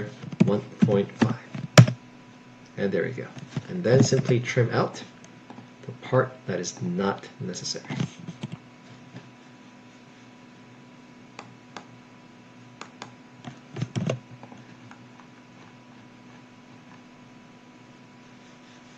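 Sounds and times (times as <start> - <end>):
faint electrical hum: 0.0 - 18.9
keyboard and mouse clicks: 13.8 - 15.0.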